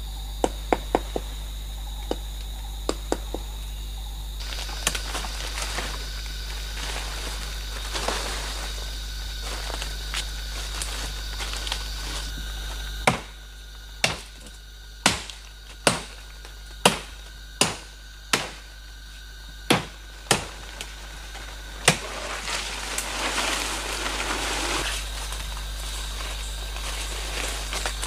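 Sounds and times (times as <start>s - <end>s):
rustling leaves and undergrowth: 3.5s - 28.0s
chopping into wood: 13.0s - 13.4s, 14.0s - 18.7s, 19.7s - 20.6s, 21.8s - 22.2s.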